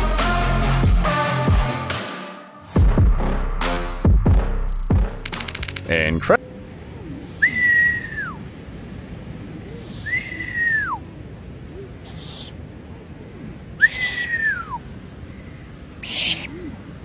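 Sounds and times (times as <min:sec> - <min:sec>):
owl chick whistling call: 0:07.4 - 0:08.4, 0:09.8 - 0:11.0, 0:13.8 - 0:14.8, 0:16.0 - 0:16.7.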